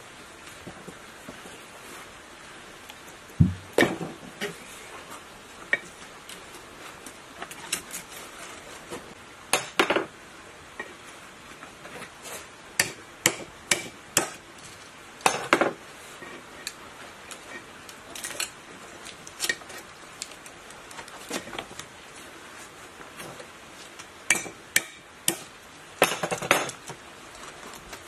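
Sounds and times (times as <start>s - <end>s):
hammer striking chisel: 9.5s - 9.9s, 12.8s - 14.4s, 24.3s - 25.4s.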